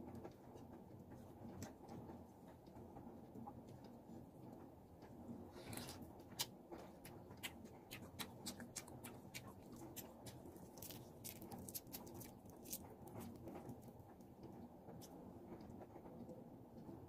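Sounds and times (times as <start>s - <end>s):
shrimp shells crackling as peeled: 7.4s - 13.9s.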